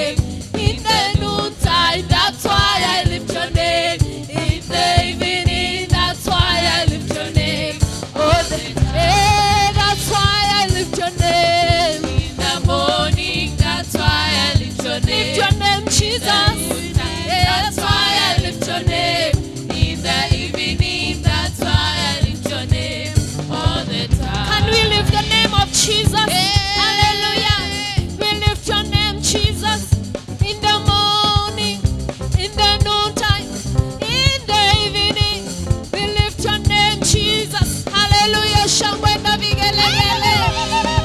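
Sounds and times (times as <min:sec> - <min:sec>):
backing singers: 0:00.0 - 0:28.4, 0:39.5 - 0:41.0
instrumental accompaniment with beat: 0:00.0 - 0:41.0
woman singing into microphone: 0:00.0 - 0:41.0.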